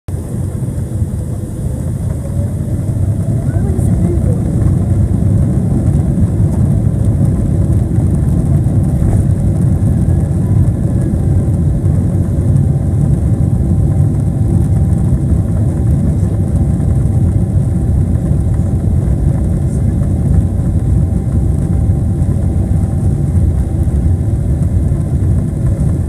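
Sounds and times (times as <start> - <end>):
jet engine roar in cabin: 0.1 - 26.0
runway rumble: 0.1 - 26.0.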